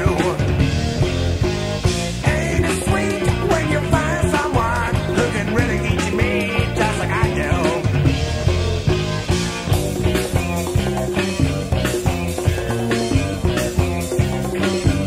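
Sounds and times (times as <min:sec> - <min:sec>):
bass line: 0:00.0 - 0:15.0
steady drum beat: 0:00.0 - 0:15.0.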